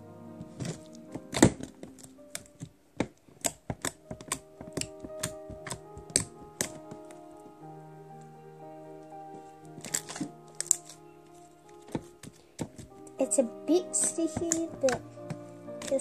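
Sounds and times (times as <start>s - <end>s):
slime crackling and popping: 0.5s - 7.5s, 9.7s - 13.2s, 13.8s - 16.0s.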